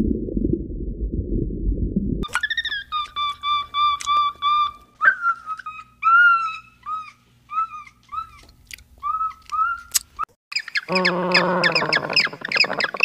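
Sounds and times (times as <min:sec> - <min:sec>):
macaque whistle-like calls: 0:02.3 - 0:08.4, 0:09.0 - 0:10.0, 0:10.6 - 0:13.0.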